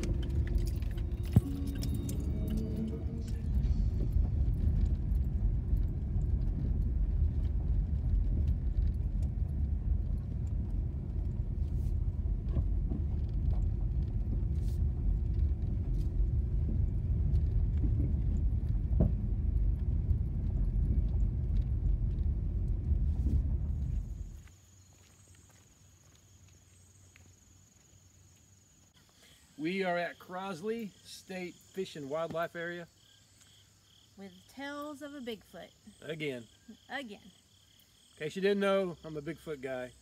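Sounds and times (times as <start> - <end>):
car tyres and engine rumble: 0.0 - 29.7
stones ticking under tyres: 0.0 - 29.8, 31.7 - 34.0.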